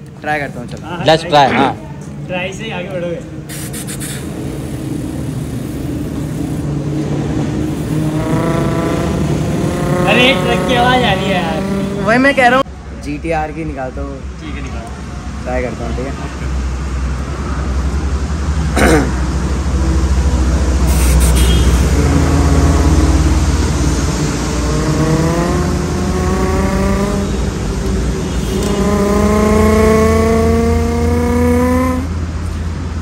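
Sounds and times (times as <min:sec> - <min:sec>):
man imitating revving engine: 0:07.8 - 0:12.3, 0:18.7 - 0:19.2, 0:21.1 - 0:23.0, 0:28.5 - 0:32.1.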